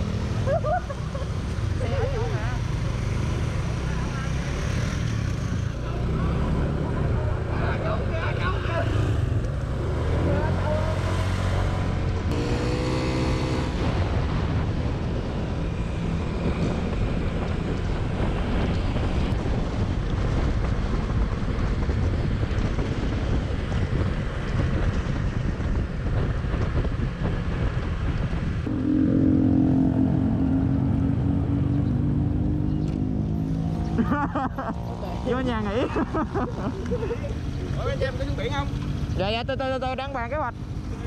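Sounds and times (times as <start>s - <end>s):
wind rushing over microphone: 8.3s - 34.1s
droning tone with overtones: 28.7s - 33.7s.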